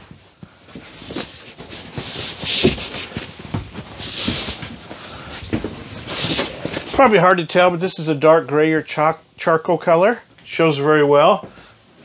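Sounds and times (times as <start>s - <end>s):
cushions rustling: 0.0s - 7.4s.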